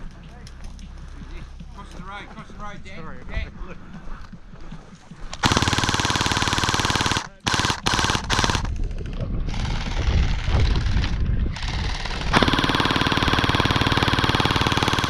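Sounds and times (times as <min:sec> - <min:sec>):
toy blaster firing full-auto: 0:05.4 - 0:08.8, 0:09.5 - 0:15.0.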